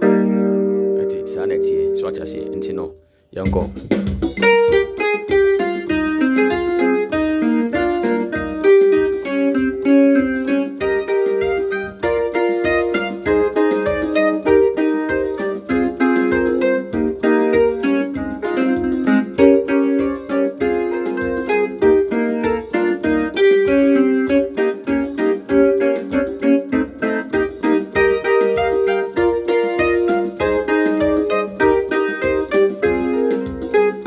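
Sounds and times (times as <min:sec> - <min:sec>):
electronic keyboard piano chords: 0:00.0 - 0:34.0
steady low beat: 0:01.5 - 0:06.8.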